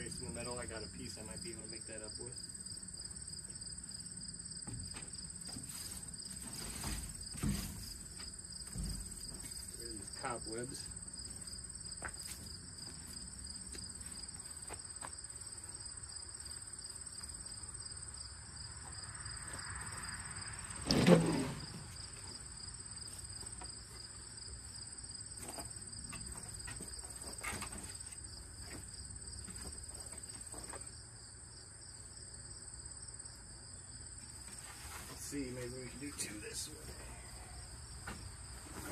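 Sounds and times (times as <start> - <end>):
insects chirping: 0.0 - 38.9
knocks of wood being handled: 4.6 - 9.8, 25.4 - 30.9
wooden pallet thud on ground: 6.4 - 8.0, 8.6 - 9.6.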